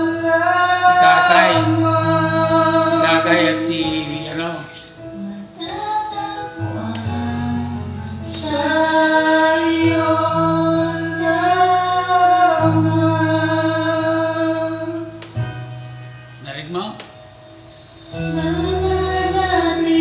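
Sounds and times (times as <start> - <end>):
man and woman singing together: 0.1 - 4.3
instrumental accompaniment: 0.3 - 20.0.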